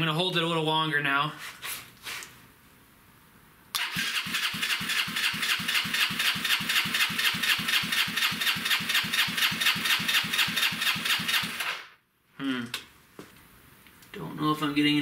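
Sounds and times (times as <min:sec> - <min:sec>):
engine cranking on electric starter: 0:03.8 - 0:11.8.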